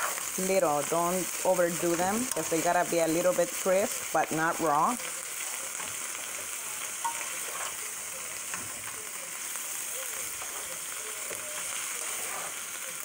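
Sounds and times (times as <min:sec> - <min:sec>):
onions sizzling in a pan: 0:00.0 - 0:13.0.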